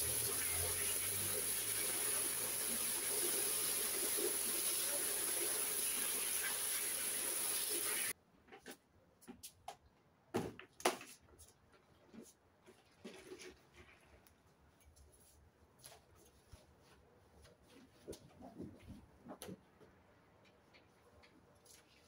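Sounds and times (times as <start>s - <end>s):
hose spraying into bucket: 0.0s - 8.2s.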